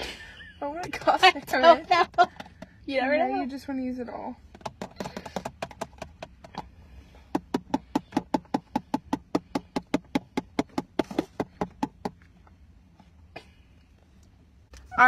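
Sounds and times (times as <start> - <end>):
plastic bottle tapping: 4.5 - 6.7, 7.3 - 12.2.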